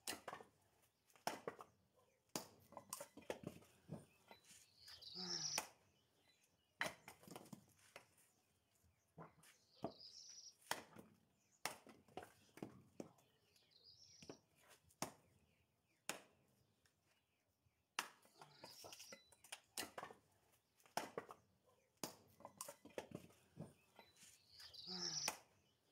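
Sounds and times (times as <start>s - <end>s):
hatchet splitting firewood: 0.0s - 4.1s, 19.4s - 23.8s.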